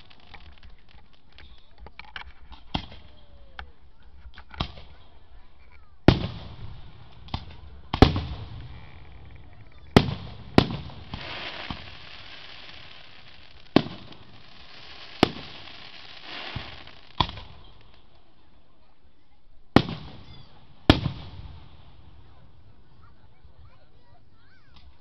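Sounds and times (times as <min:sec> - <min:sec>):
hissing crackle: 0:00.0 - 0:03.1, 0:06.3 - 0:18.2
firework shells booming: 0:06.1 - 0:18.0, 0:19.8 - 0:22.0.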